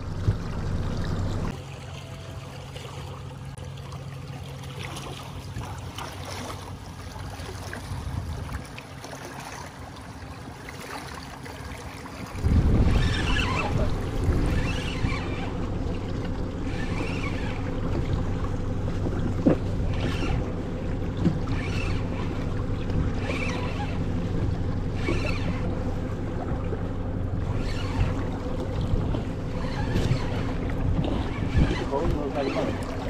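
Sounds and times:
boat motor humming: 0.0 - 33.0
water sloshing against hull: 0.0 - 33.0.

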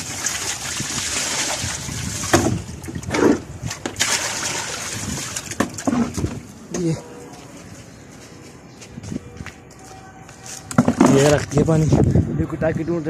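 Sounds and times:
water splashing onto concrete: 0.0 - 6.4
bucket bumps: 0.1 - 6.4, 10.8 - 11.4.

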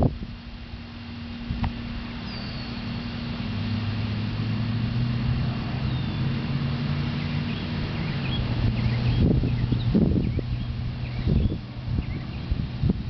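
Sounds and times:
low engine hum: 0.0 - 13.0
ducklings peeping: 7.1 - 12.6.

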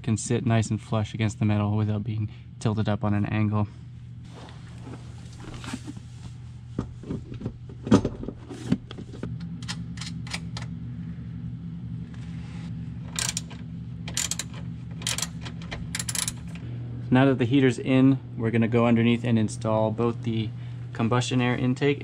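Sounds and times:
steady low hum: 0.0 - 22.0
metallic clicks and knocks: 13.1 - 16.6.

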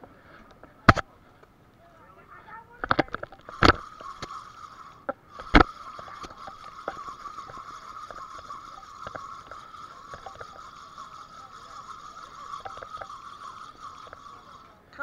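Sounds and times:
boat engine hum: 3.2 - 15.0.

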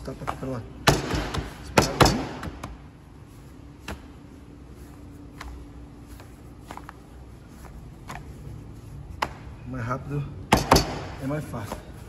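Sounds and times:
hands pressing dough: 5.3 - 9.6.

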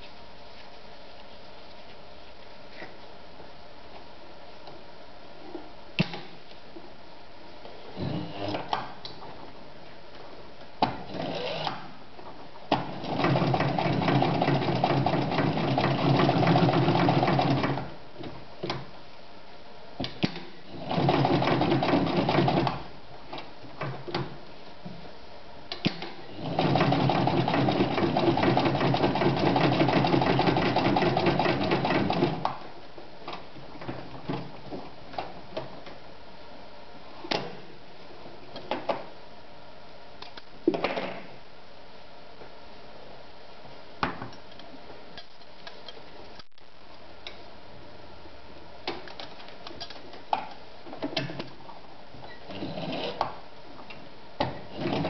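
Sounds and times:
sewing machine stitching leather: 11.1 - 11.8, 12.7 - 17.9, 20.7 - 22.9, 25.9 - 32.6, 54.6 - 55.0.

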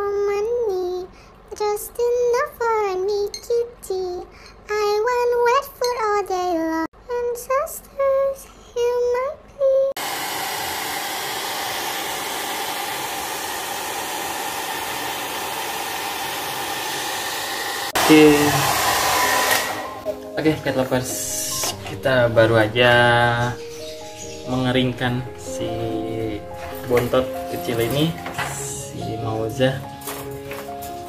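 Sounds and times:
hair dryer running: 10.0 - 20.2.

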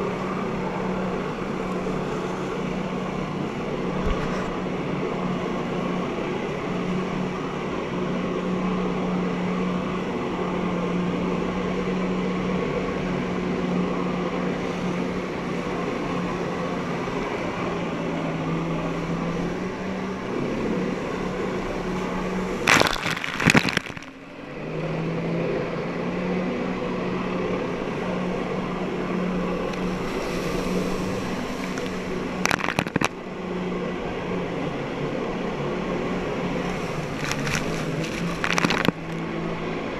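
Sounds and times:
watercraft engine running: 0.0 - 39.9
splashing spray: 29.6 - 33.2, 36.6 - 39.4.

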